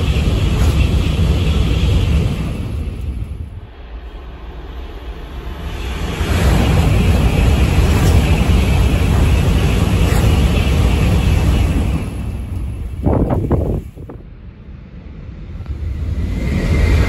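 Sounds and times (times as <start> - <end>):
high-speed train passing: 0.0 - 17.0.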